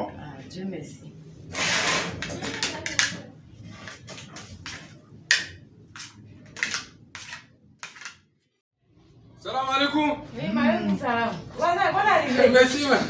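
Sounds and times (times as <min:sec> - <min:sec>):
spoon scraping plates: 0:01.6 - 0:08.3.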